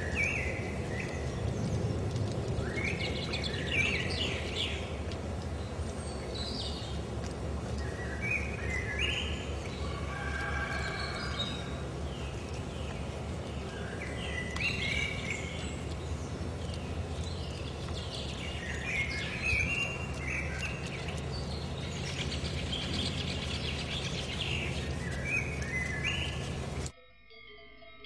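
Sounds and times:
birds chirping: 0:00.0 - 0:26.9
low background rumble: 0:00.0 - 0:26.9.

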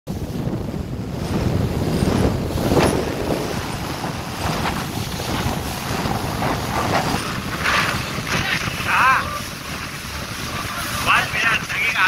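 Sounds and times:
boat wake and spray rushing: 0:00.1 - 0:12.0
wind buffeting microphone: 0:00.1 - 0:12.0.

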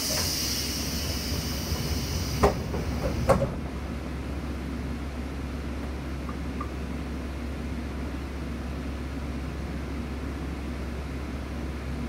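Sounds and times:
hiss of released air: 0:00.0 - 0:03.2.

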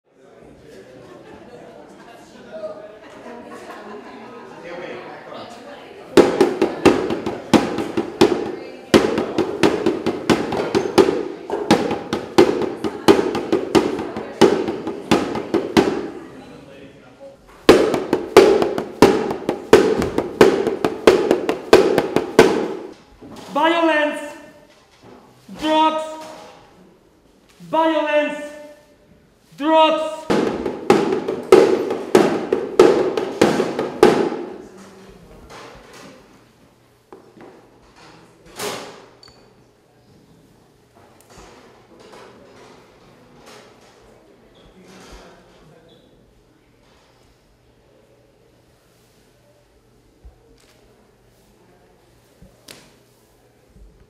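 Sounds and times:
frame drum beaten with stick: 0:06.2 - 0:16.2, 0:17.7 - 0:22.9, 0:30.2 - 0:34.6.

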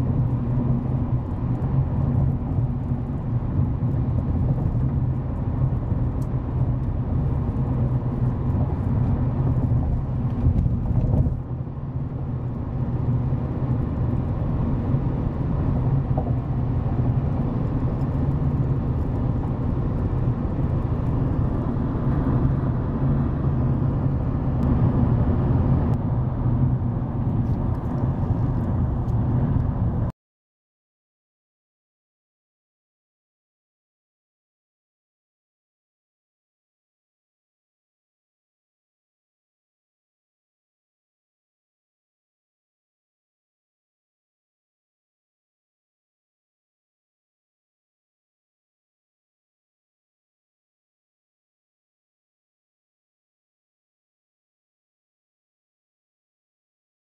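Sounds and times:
car road and engine rumble: 0:00.0 - 0:30.2.

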